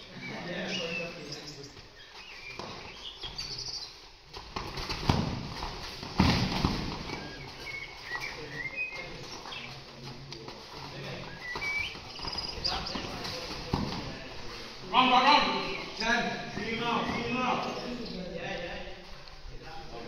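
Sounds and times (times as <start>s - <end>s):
loud thumps: 4.6s - 7.2s
shoes squeaking on court: 6.9s - 14.0s.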